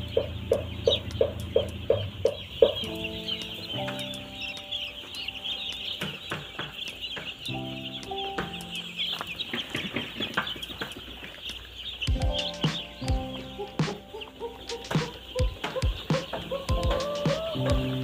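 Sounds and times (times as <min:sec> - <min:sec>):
chicks peeping: 0:00.0 - 0:18.0
low background music: 0:00.0 - 0:18.0.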